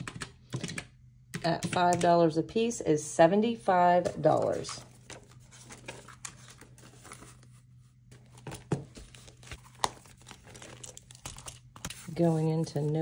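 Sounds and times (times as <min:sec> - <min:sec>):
paper rustling and crinkling: 0:04.0 - 0:13.0.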